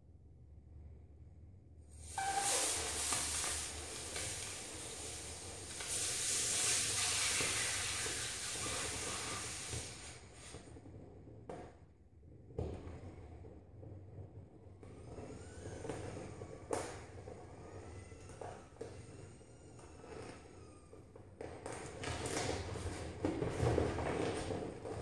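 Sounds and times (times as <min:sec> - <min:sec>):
air hissing out of swim ring: 0:02.0 - 0:10.5.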